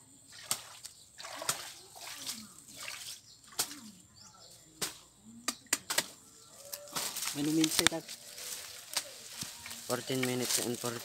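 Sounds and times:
hands splashing in water: 0:00.3 - 0:03.9.

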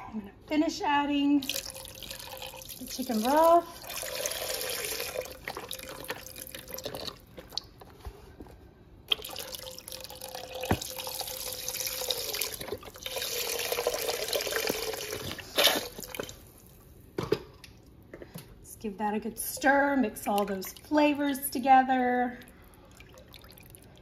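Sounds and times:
broth pouring into pot: 0:01.4 - 0:07.2, 0:09.1 - 0:16.2.

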